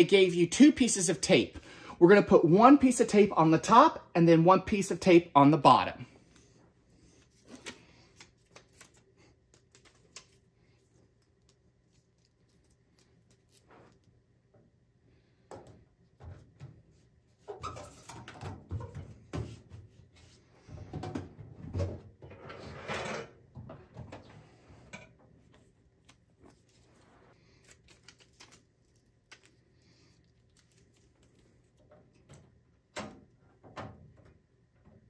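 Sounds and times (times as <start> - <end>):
tape rustling and scratching: 6.2 - 14.2, 16.2 - 20.4, 24.0 - 34.4.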